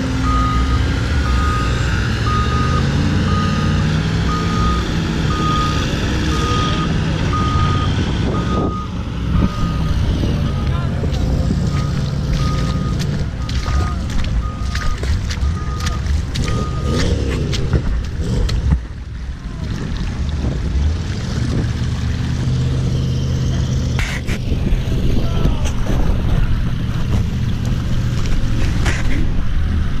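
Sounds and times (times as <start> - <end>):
skid steer engine running: 0.0 - 18.9
muddy water sloshing: 2.2 - 30.0.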